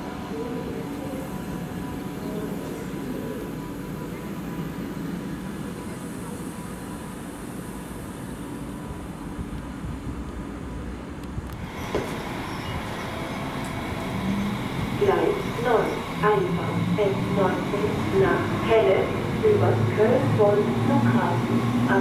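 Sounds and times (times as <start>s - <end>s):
electric train rumbling: 0.0s - 22.0s
station platform ambience: 0.0s - 22.0s
faint steady tones: 11.6s - 22.0s.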